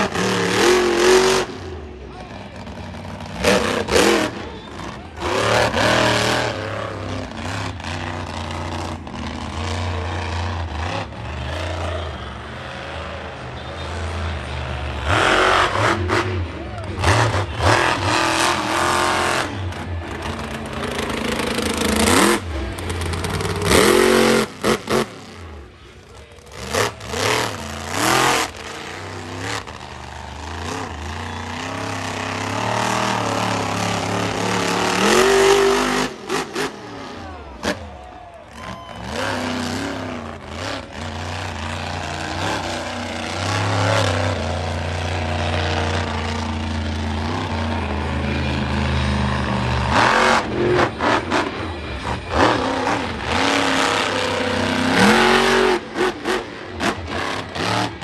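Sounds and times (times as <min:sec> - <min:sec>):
truck engine revving hard: 0:00.0 - 0:58.0.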